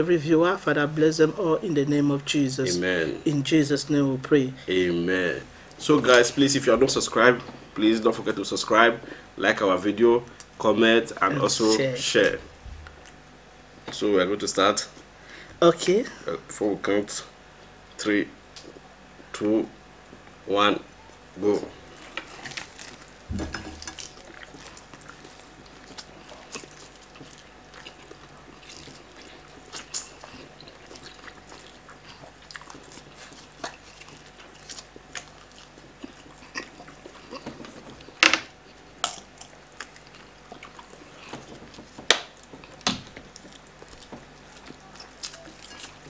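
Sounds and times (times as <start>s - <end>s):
people biting and chewing: 21.9s - 46.0s
meat and skin ripping: 22.0s - 38.1s, 39.0s - 46.0s.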